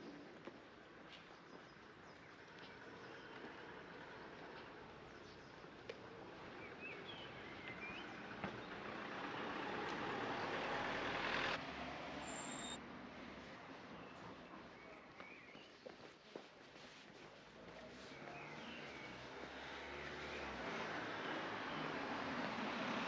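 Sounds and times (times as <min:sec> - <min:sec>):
passing vehicle: 0:02.8 - 0:13.4, 0:18.1 - 0:23.0.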